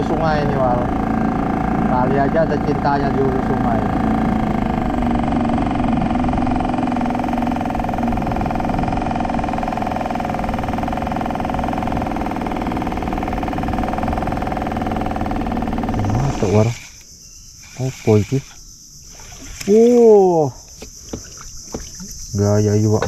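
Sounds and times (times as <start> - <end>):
outboard motor running: 0.0 - 23.0.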